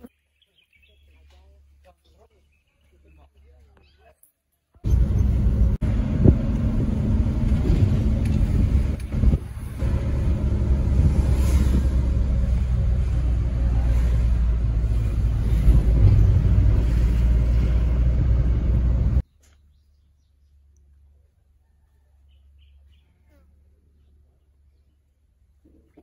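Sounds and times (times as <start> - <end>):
car interior engine and road rumble: 4.8 - 19.2.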